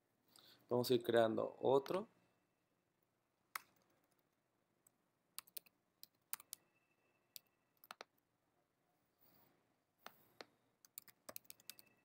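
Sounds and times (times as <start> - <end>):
computer keyboard typing: 5.4 - 6.6, 7.3 - 8.2, 10.8 - 12.0.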